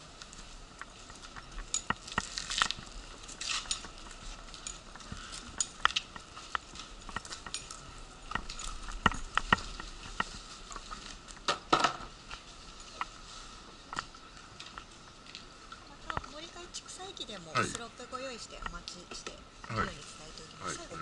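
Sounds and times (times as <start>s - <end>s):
wheelchair rolling on concrete: 0.0s - 21.0s.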